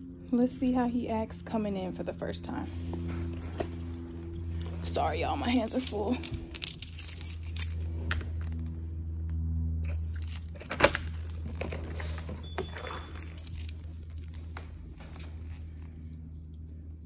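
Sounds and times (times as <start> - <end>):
steady low hum: 0.0 - 17.0
keys jangling: 5.5 - 8.2, 10.2 - 14.3
key turning in door lock: 10.2 - 13.9.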